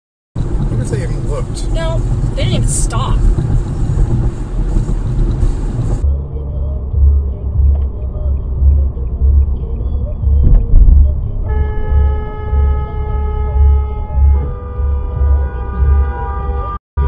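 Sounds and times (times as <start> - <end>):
car road and engine rumble: 0.4 - 16.8
car horn long blast: 11.4 - 16.8.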